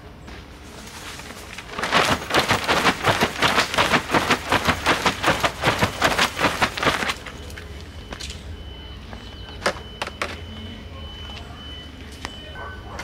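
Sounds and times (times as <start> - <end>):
stiff fabric rustling: 1.1 - 7.3.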